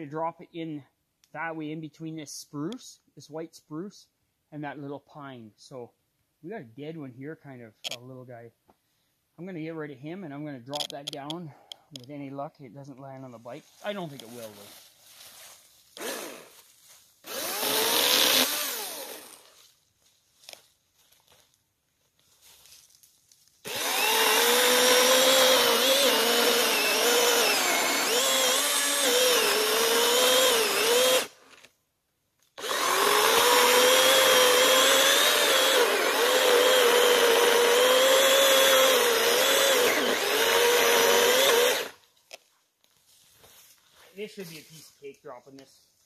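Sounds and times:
electric chainsaw cutting wood: 0:16.0 - 0:16.6, 0:17.2 - 0:19.6, 0:23.6 - 0:31.7, 0:32.6 - 0:42.0.

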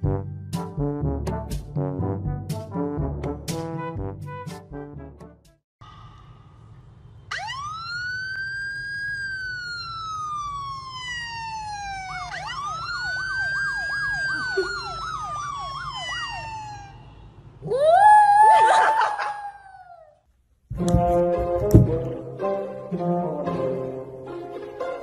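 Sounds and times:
police siren wailing: 0:07.3 - 0:19.4
siren yelp: 0:07.3 - 0:20.0.

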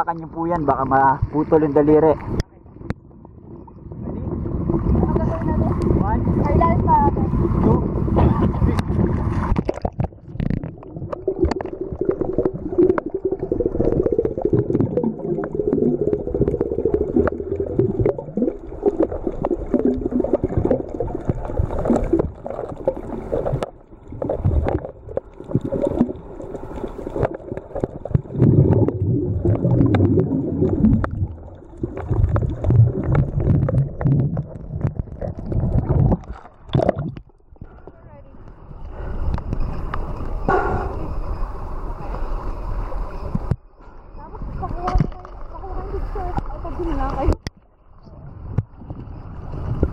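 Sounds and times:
underwater rumbling and bubbling: 0:00.0 - 0:49.9
clicks and crackles: 0:08.7 - 0:13.1.

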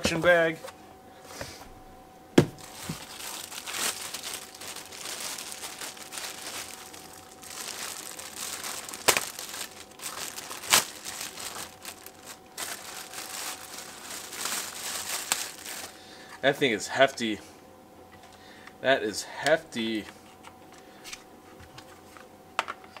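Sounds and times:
plastic bag crinkling: 0:02.5 - 0:16.0.

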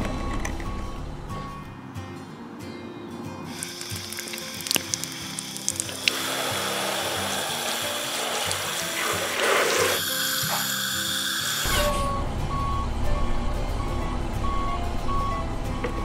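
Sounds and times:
background music: 0:00.0 - 0:16.0
water splashing on plastic toy: 0:03.5 - 0:10.0
steady beeping: 0:10.0 - 0:16.0.

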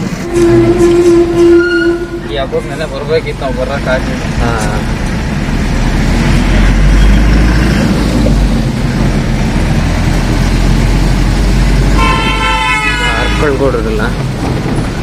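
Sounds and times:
road rumble inside cab: 0:00.0 - 0:15.0
vehicle horn: 0:00.2 - 0:02.6, 0:11.9 - 0:13.6
truck engine running: 0:02.4 - 0:12.0.

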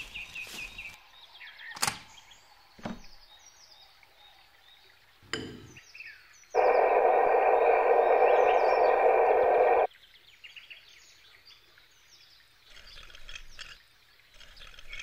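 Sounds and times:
faint bird chirps: 0:05.8 - 0:09.9.

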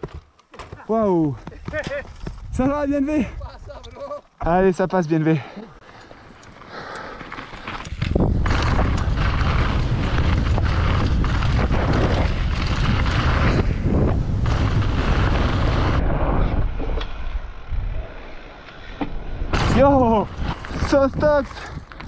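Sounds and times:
bike tyres rattling over rock: 0:01.5 - 0:02.8, 0:06.1 - 0:16.0, 0:19.5 - 0:22.0
wind rushing over microphone: 0:07.9 - 0:18.4.

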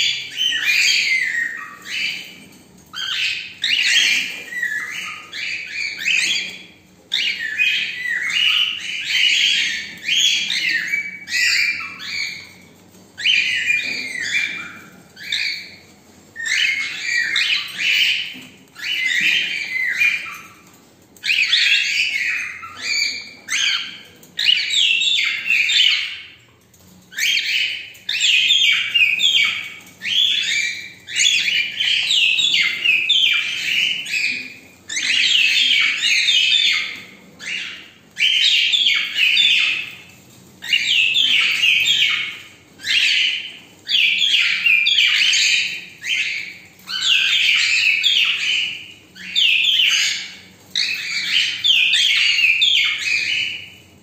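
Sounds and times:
cockatiels chirping and chattering: 0:00.0 - 0:54.0.

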